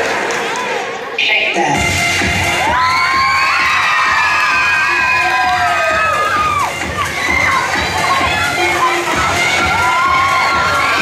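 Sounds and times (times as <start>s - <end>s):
children cheering and shrieking: 2.6s - 11.0s.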